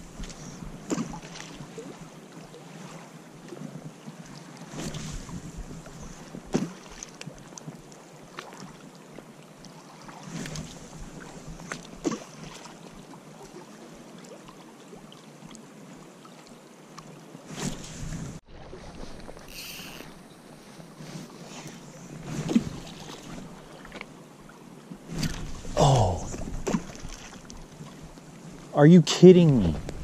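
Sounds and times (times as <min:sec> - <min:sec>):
river current rushing: 0:19.4 - 0:23.7.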